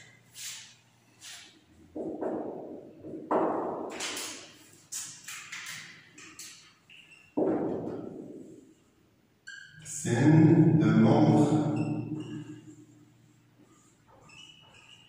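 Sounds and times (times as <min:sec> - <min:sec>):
marker writing on whiteboard: 0:13.6 - 0:15.0.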